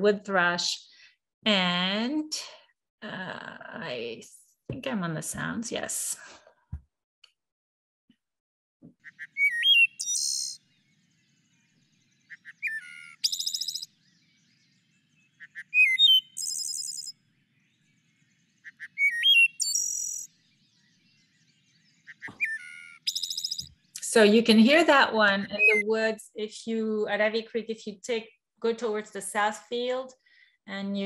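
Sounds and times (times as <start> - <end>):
wood thrush singing: 9.0 - 24.0, 24.7 - 25.8.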